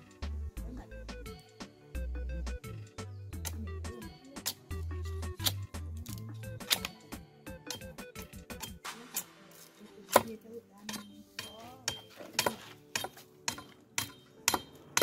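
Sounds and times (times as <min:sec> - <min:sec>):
knife chopping wood stick: 0:03.4 - 0:03.6, 0:04.4 - 0:07.0, 0:07.6 - 0:15.0.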